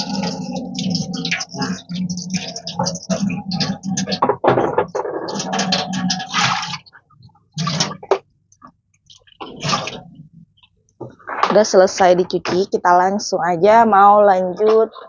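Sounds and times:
water sloshing: 0.0 - 12.7
water splash: 5.0 - 6.9, 9.2 - 10.2.

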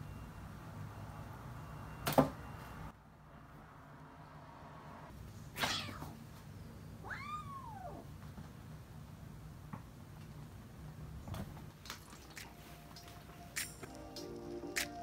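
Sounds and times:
kitten meowing: 5.6 - 6.2, 7.0 - 8.0.

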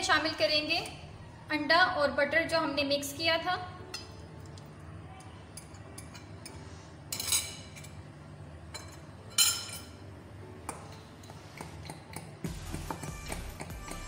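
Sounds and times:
metal spoon clinking on glass: 5.6 - 8.0, 8.7 - 10.0.

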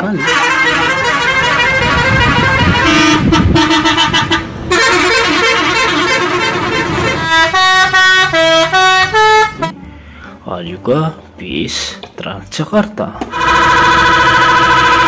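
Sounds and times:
musical bus air horns: 0.0 - 9.8, 13.3 - 15.0.

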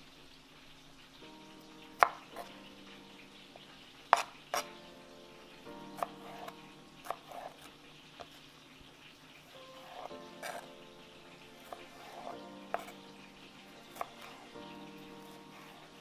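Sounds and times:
fish frying in oil: 0.0 - 16.0
soft background music: 0.9 - 16.0
knife hitting cutting board: 4.1 - 4.7, 9.8 - 10.7, 11.6 - 13.0.

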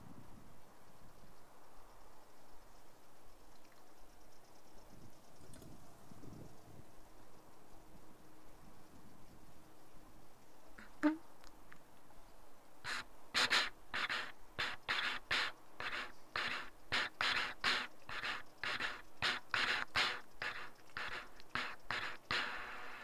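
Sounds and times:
fast rhythmic panting breaths: 12.9 - 23.0.

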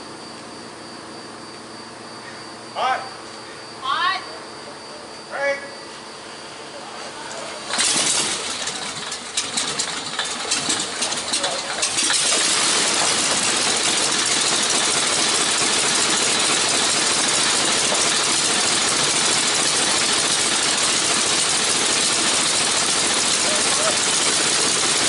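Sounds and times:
radial aircraft engine running: 6.2 - 25.0.

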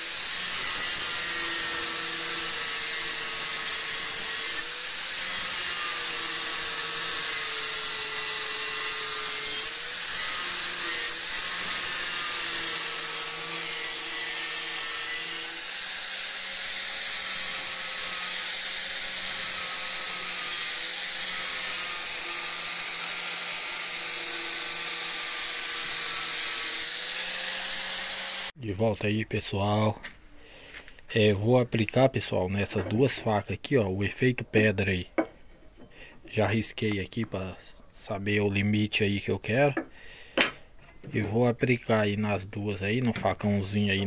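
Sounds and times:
angle grinder grinding steel: 0.0 - 28.6.

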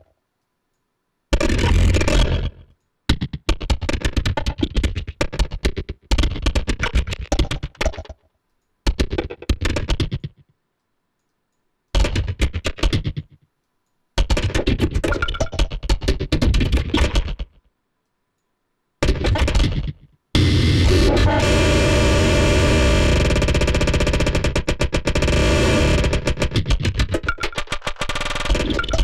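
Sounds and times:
rapid clicking grains: 23.2 - 29.0.

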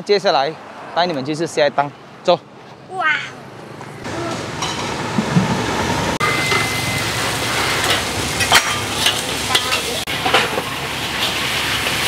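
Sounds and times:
food sizzling in wok: 6.2 - 12.0.

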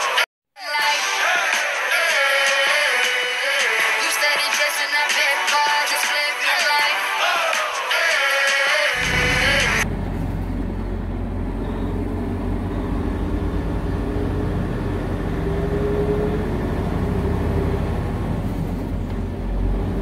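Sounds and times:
music: 0.0 - 9.8
truck engine and road noise: 9.0 - 20.0.

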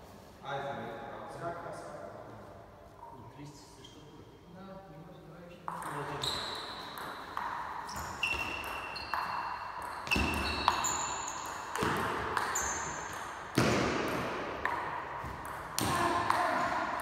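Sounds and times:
table tennis rally: 5.6 - 17.0.

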